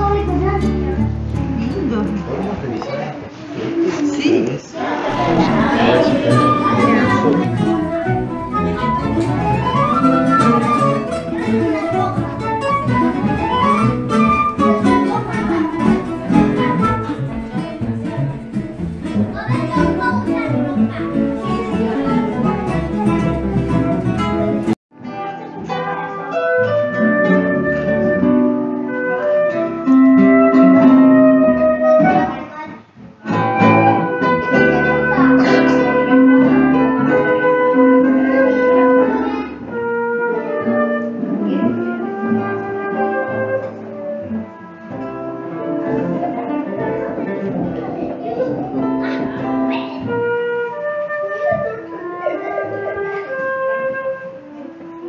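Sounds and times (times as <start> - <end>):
double bass: 0.0 - 2.9, 5.1 - 24.8, 26.6 - 32.4, 33.2 - 55.0
acoustic guitars: 0.0 - 55.0
flute: 5.1 - 17.6, 25.3 - 32.5, 33.3 - 46.1, 50.0 - 55.0.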